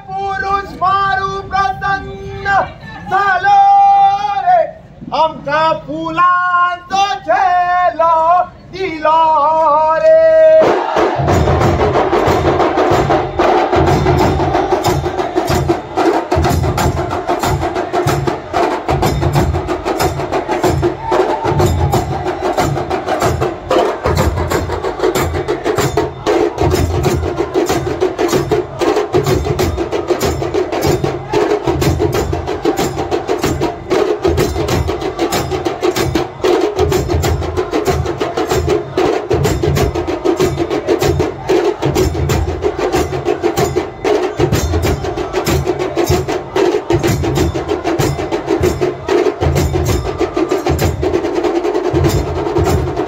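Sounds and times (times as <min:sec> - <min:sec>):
percussion band playing: 0:10.2 - 0:53.0
deep drum beats: 0:10.6 - 0:53.0
sharp drum and cymbal strikes: 0:10.6 - 0:53.0.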